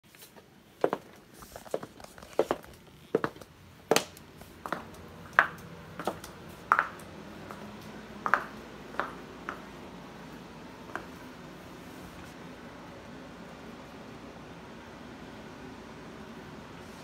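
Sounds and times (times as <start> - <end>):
clog footsteps on tiled floor: 0.1 - 9.7.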